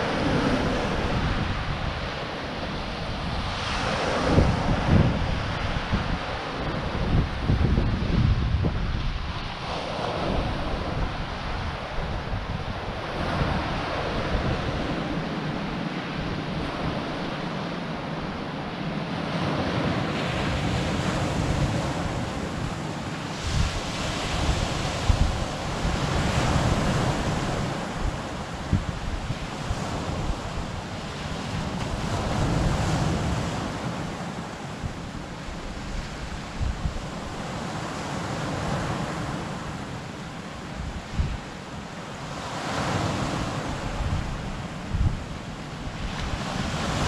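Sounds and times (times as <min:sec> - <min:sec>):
waves breaking on pebble beach: 0:00.0 - 0:06.6, 0:19.4 - 0:40.2
wind buffeting microphone: 0:00.0 - 0:39.8, 0:40.6 - 0:47.0.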